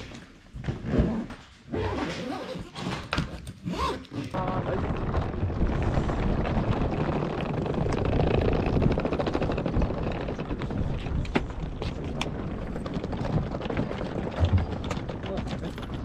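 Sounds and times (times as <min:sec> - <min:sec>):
suitcase wheels rolling: 0:00.2 - 0:16.0.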